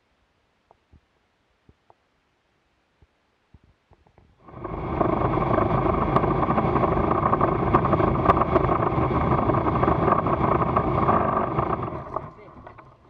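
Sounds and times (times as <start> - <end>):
wind and road noise: 4.0 - 13.0.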